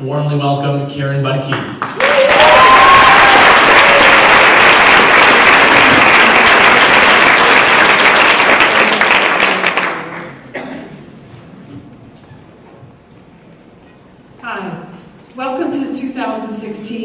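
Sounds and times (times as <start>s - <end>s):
audience applauding: 1.8s - 10.5s
audience cheering: 2.0s - 9.6s.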